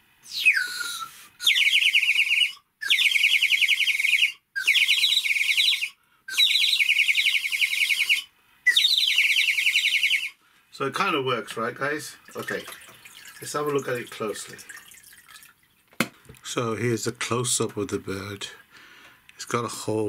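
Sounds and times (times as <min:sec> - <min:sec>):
water whistle warbling: 0:00.4 - 0:10.4.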